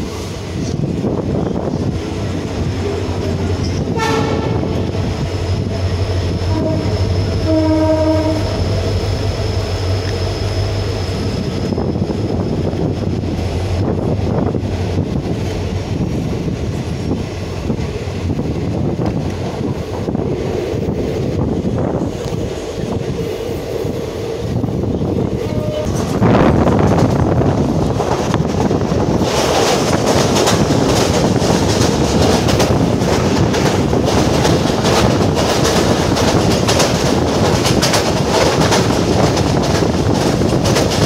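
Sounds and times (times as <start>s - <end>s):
train wheels and carriage noise: 0.0s - 41.0s
train horn: 3.9s - 4.8s, 6.3s - 8.7s, 25.4s - 26.2s.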